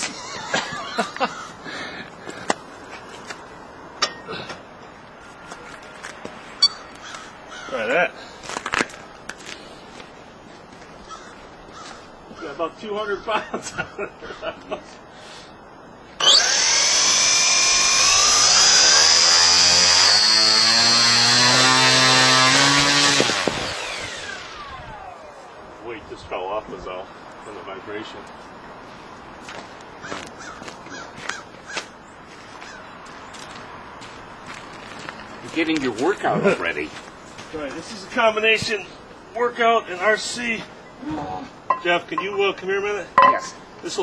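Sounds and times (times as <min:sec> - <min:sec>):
electric motor whining: 0:16.2 - 0:25.2
weights knocking and clanking: 0:41.7 - 0:42.4, 0:43.2 - 0:43.6.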